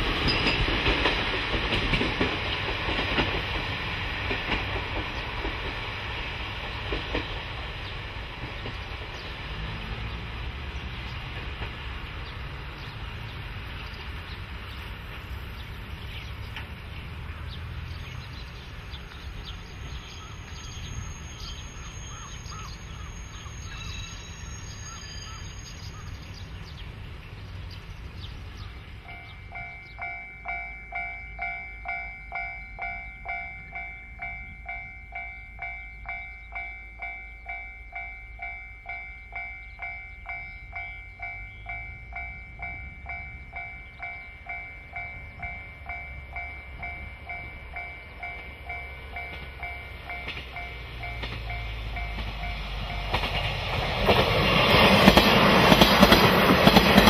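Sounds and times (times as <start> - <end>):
level crossing bell ringing: 29.1 - 53.2.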